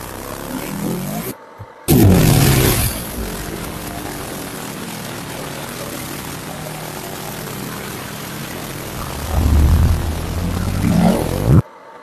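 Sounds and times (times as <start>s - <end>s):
laser cleaning machine hissing: 1.9s - 11.6s
low rumble: 8.9s - 11.6s.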